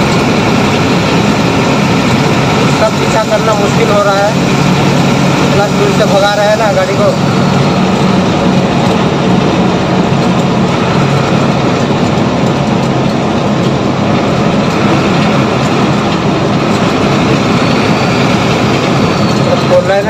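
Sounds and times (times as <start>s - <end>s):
low engine hum: 0.0s - 20.0s
rush of tyres and wind: 0.0s - 20.0s.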